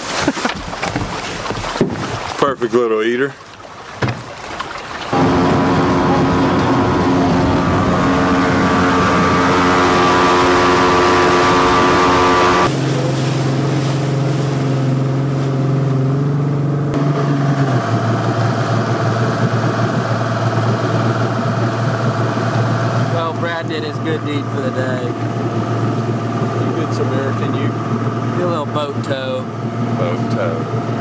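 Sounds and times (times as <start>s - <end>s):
boat engine running: 0.0s - 31.0s
water rushing: 0.0s - 31.0s.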